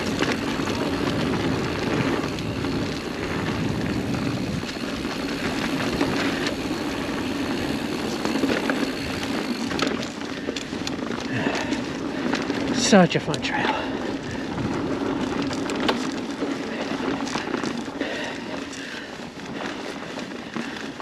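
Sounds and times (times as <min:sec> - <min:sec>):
wind on microphone: 0:00.0 - 0:06.4
bike clicks and rattles: 0:00.0 - 0:21.0
bike tyres rolling on dirt: 0:00.0 - 0:21.0.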